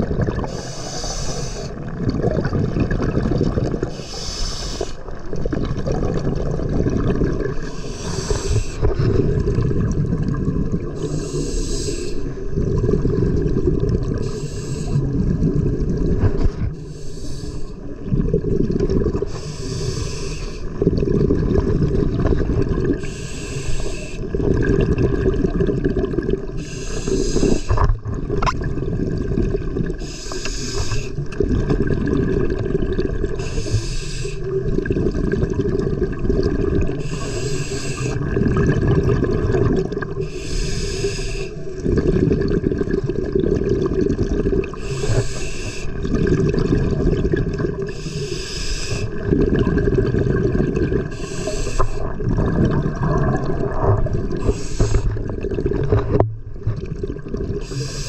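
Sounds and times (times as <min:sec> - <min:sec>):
exhaust bubbles rumbling: 0:00.0 - 0:00.6, 0:01.7 - 0:04.0, 0:05.1 - 0:11.6, 0:12.2 - 0:16.8, 0:17.7 - 0:19.8, 0:20.6 - 0:23.1, 0:24.2 - 0:26.6, 0:27.4 - 0:30.0, 0:31.1 - 0:33.4, 0:34.4 - 0:37.3, 0:38.0 - 0:40.2, 0:41.6 - 0:45.0, 0:45.9 - 0:48.0, 0:49.0 - 0:57.9
regulator inhale hiss: 0:00.5 - 0:01.8, 0:03.9 - 0:05.0, 0:07.6 - 0:09.0, 0:11.0 - 0:12.4, 0:14.2 - 0:15.1, 0:16.7 - 0:17.9, 0:19.3 - 0:20.8, 0:23.0 - 0:24.3, 0:26.6 - 0:28.0, 0:30.0 - 0:31.2, 0:33.4 - 0:34.6, 0:37.0 - 0:38.3, 0:40.2 - 0:41.7, 0:44.7 - 0:46.0, 0:47.9 - 0:49.2, 0:51.1 - 0:52.1, 0:54.4 - 0:55.2, 0:57.6 - 0:58.0.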